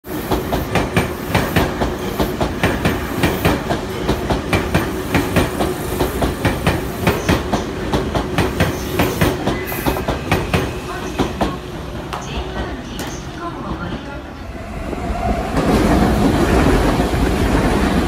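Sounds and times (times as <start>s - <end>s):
train wheels clacking: 0.1s - 13.2s
train rumble and hum: 0.1s - 18.0s.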